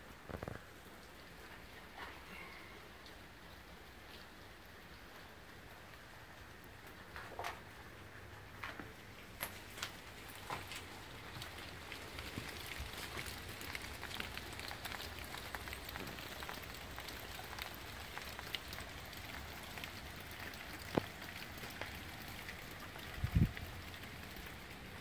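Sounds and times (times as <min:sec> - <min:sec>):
rain pattering on leaves: 0:00.0 - 0:25.0.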